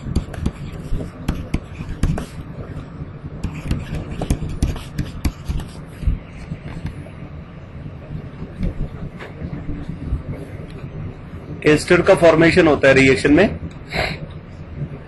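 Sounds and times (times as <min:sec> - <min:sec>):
stylus tapping pen tablet: 0:00.0 - 0:02.4, 0:03.4 - 0:05.8
steady low hum: 0:00.0 - 0:15.0.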